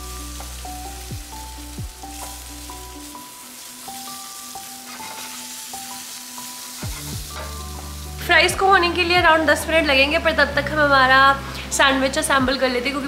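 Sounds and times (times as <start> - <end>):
vegetables sizzling in frying pan: 0.0 - 10.2
spatula stirring in pan: 3.6 - 7.6.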